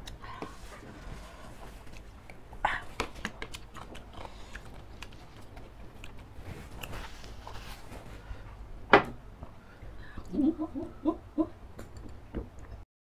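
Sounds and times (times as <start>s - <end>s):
lip smacks and mouth clicks: 1.8s - 7.0s.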